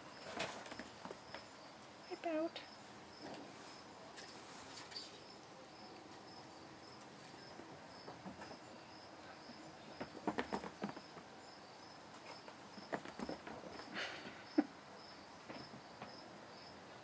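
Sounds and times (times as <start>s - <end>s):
insect chirping: 0.0s - 3.9s, 4.8s - 16.8s
kittens scampering on carpet: 10.0s - 11.3s, 12.1s - 14.2s.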